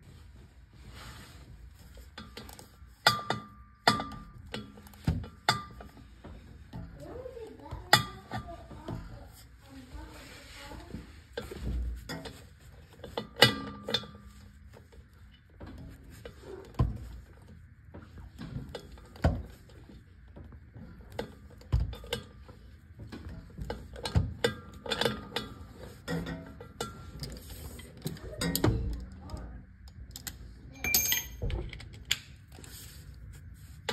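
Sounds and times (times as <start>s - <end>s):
bolts clanking on metal: 2.0s - 7.1s, 11.4s - 14.9s, 18.3s - 29.1s, 30.0s - 32.3s.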